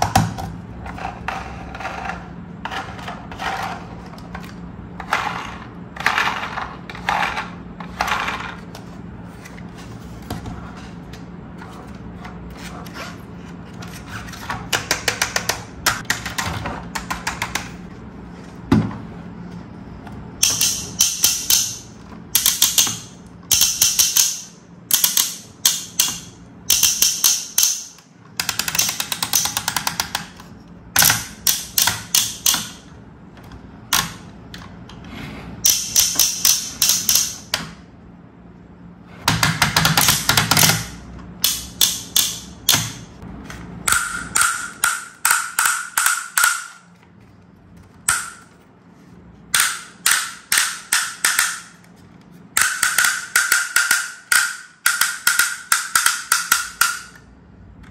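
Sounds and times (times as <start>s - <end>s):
toy ladder plastic clicking: 14.6s - 17.8s, 20.4s - 32.9s, 35.6s - 37.8s, 39.3s - 43.1s, 49.6s - 57.9s.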